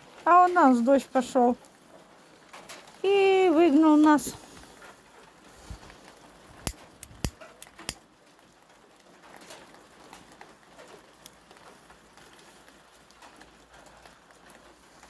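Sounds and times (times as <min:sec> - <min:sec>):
sharp clicks: 0:06.6 - 0:08.0.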